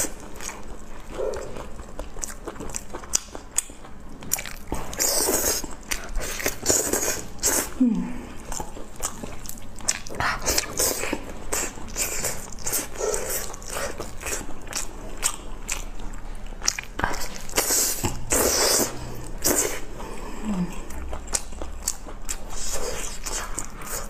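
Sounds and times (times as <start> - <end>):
biting and chewing: 0.0 - 7.7, 8.4 - 19.8.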